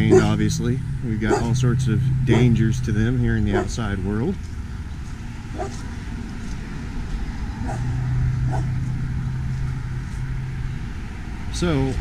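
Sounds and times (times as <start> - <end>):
dog barking: 0.0 - 0.4, 1.2 - 1.6, 2.3 - 2.6, 3.5 - 3.8, 5.5 - 5.9, 7.6 - 7.9, 8.5 - 8.7
low engine hum: 0.0 - 12.0.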